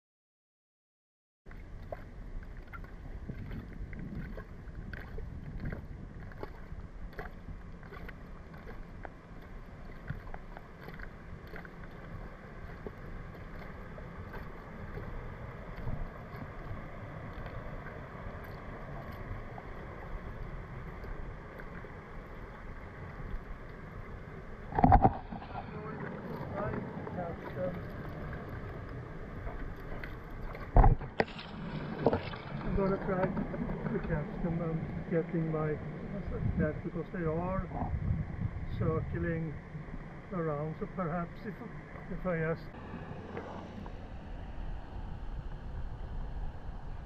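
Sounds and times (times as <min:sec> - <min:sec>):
wind rumbling on microphone: 0:01.5 - 0:47.0.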